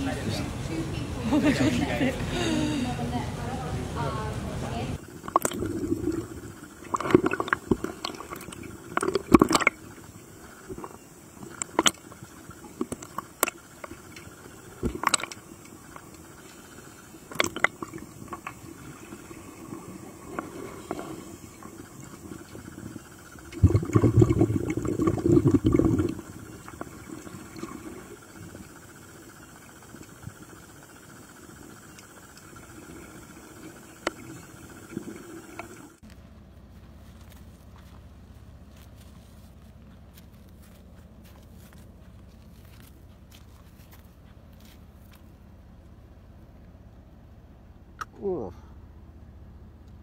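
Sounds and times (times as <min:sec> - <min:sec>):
bubbling water rush: 0:03.6 - 0:36.0
underwater clicks and taps: 0:06.9 - 0:09.8, 0:12.7 - 0:16.0.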